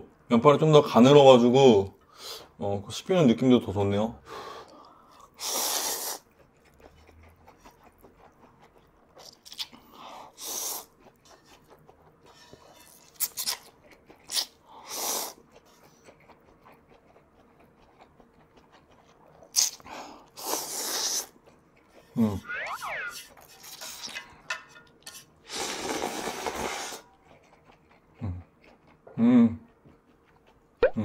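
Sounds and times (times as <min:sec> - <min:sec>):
chewing: 0:04.3 - 0:31.0
person slurping noodles: 0:05.4 - 0:06.3, 0:09.2 - 0:11.5, 0:14.2 - 0:15.5, 0:19.5 - 0:21.4, 0:25.5 - 0:27.1.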